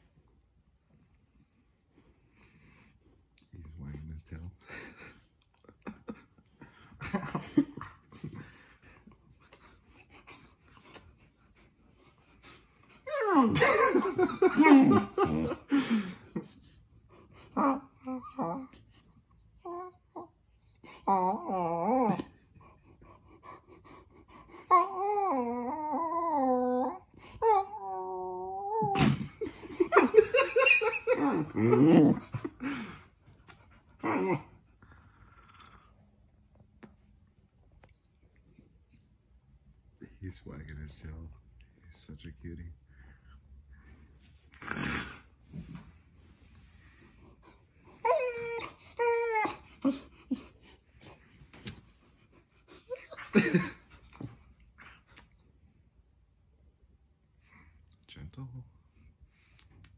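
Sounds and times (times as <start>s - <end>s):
puppy grumbles and yowls: 13.0s - 15.6s, 17.5s - 18.9s, 21.0s - 22.4s, 24.6s - 32.5s, 33.9s - 34.7s, 47.9s - 50.4s, 52.8s - 54.2s
puppy whining: 13.0s - 15.7s, 17.1s - 23.2s, 24.5s - 36.0s, 37.6s - 39.3s, 47.4s - 55.4s
puppy whimpering: 37.8s - 39.0s, 48.0s - 50.5s, 52.8s - 53.8s.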